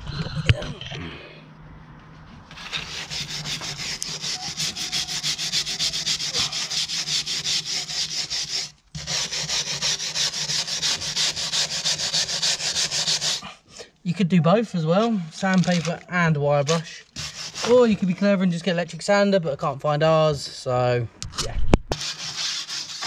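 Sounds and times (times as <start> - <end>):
wire brush scrubbing steel: 2.5 - 13.4, 14.9 - 18.2, 21.9 - 23.0.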